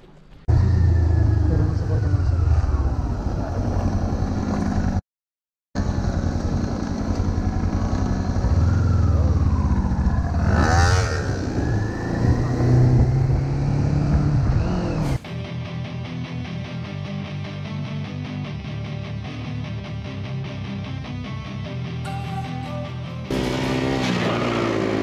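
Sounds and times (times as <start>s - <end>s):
motorcycle engine running: 0.5s - 5.0s, 5.8s - 11.7s, 23.3s - 25.0s.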